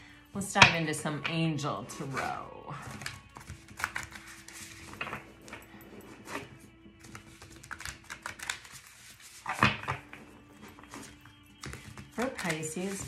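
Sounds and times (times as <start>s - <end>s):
background music: 0.0s - 13.0s
cards being shuffled: 2.1s - 13.0s
card slap: 7.0s - 8.8s.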